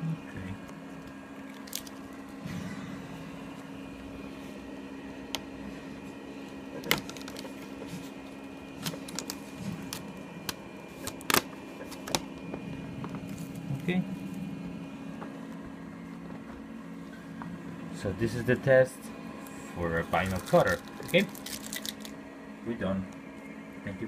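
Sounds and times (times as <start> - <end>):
steady low hum: 0.0 - 24.0
vinyl film peeling crackles: 0.7 - 2.2, 6.8 - 12.4, 20.0 - 22.2.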